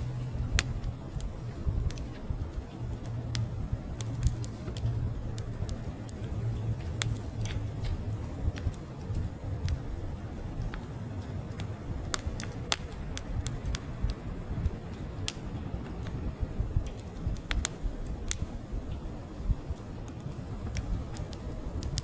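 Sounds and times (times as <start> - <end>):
firewood crackling and popping: 0.0 - 22.0
low rumble of flames: 0.0 - 22.0.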